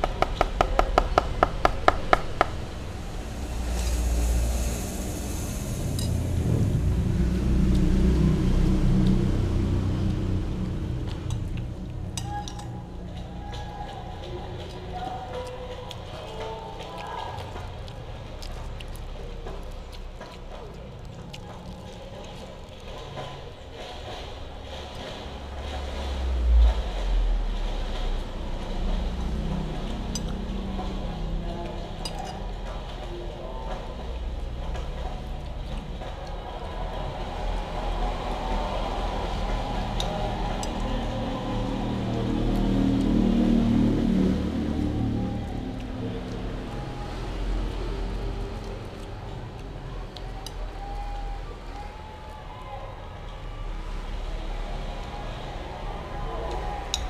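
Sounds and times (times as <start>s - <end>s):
low rumble: 0.0s - 15.0s, 17.2s - 51.6s
kitten chewing: 13.1s - 24.2s.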